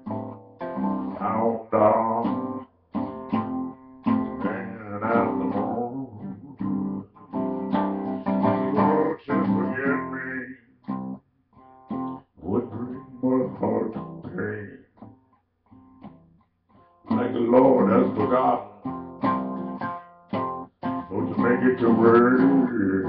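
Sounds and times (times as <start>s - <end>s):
acoustic guitar: 0.0s - 23.0s
man singing: 1.0s - 2.6s, 4.1s - 7.5s, 8.3s - 10.7s, 12.4s - 14.9s, 17.1s - 19.0s, 21.0s - 23.0s.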